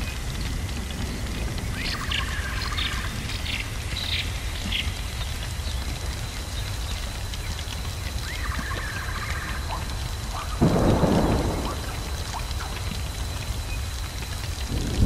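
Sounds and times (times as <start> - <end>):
steady rain: 0.0 - 15.0
thunder crack: 10.6 - 13.7, 14.6 - 15.0.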